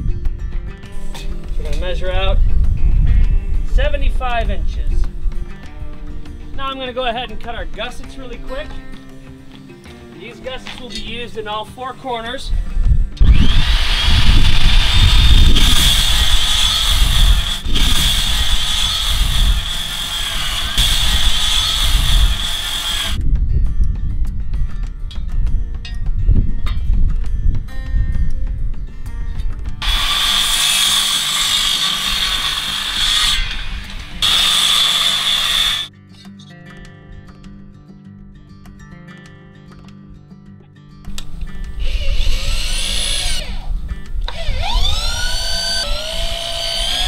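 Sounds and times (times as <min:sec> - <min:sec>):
circular saw cutting wood: 0:13.2 - 0:23.2, 0:29.8 - 0:35.9, 0:41.8 - 0:43.7, 0:44.3 - 0:47.0.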